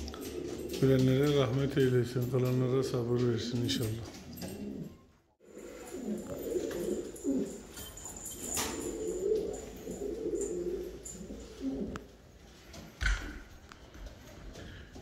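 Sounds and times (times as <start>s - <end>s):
pigeons cooing: 0.0s - 2.6s, 4.4s - 12.2s.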